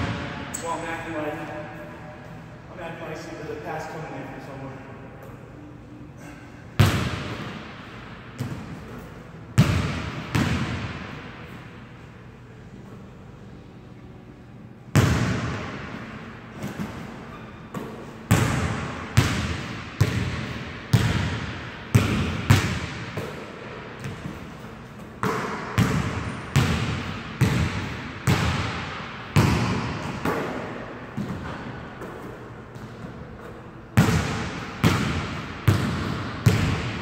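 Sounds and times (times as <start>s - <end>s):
basketball bouncing on hardwood: 34.0s - 37.0s.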